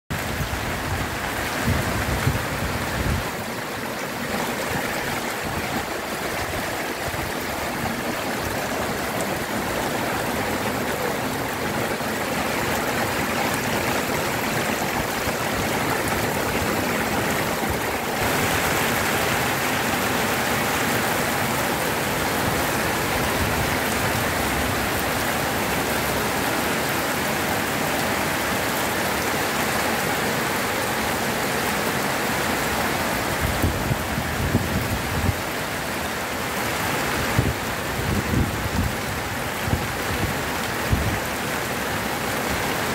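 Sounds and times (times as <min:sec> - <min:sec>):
heavy rain on pavement: 0:00.1 - 0:42.9.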